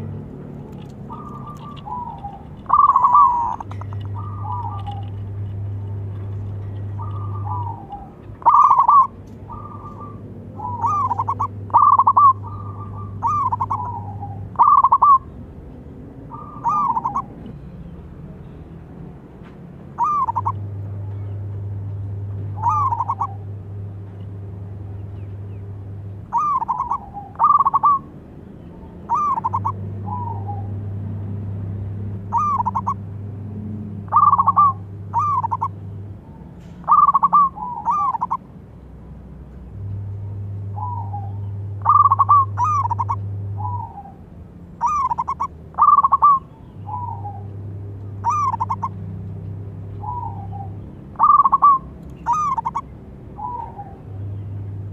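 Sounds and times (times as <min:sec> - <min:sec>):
low steady hum: 0:00.0 - 0:54.9
dove cooing: 0:00.7 - 0:15.3, 0:16.3 - 0:17.6, 0:19.9 - 0:20.7, 0:22.5 - 0:23.5, 0:26.3 - 0:28.1, 0:29.0 - 0:30.8, 0:32.2 - 0:33.1, 0:34.0 - 0:35.8, 0:36.8 - 0:38.4, 0:40.8 - 0:44.2, 0:44.8 - 0:49.1, 0:49.9 - 0:54.1.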